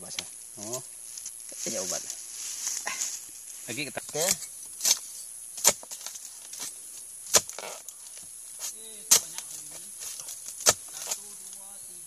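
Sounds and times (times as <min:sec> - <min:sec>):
blade chopping palm fronds: 0:04.1 - 0:08.0, 0:08.6 - 0:11.6.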